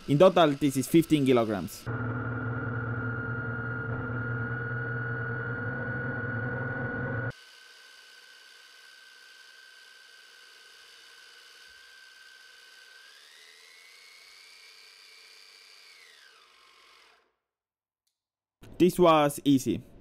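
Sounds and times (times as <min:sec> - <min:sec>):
motor gearbox whining: 0:00.2 - 0:07.3.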